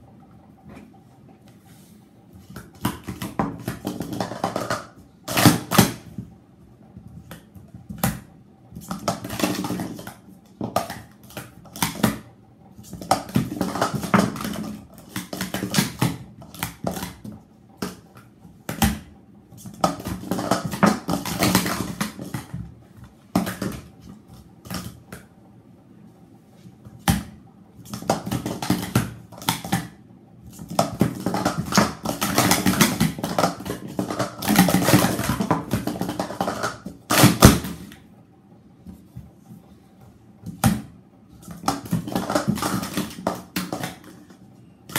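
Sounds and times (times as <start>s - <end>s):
plastic cups clacking: 2.6s - 6.0s, 12.9s - 18.0s, 19.6s - 22.6s, 30.6s - 38.0s, 41.4s - 44.4s.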